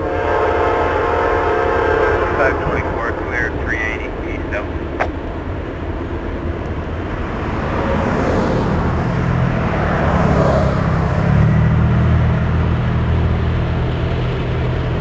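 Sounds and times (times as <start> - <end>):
diesel locomotive engines droning: 0.0 - 15.0.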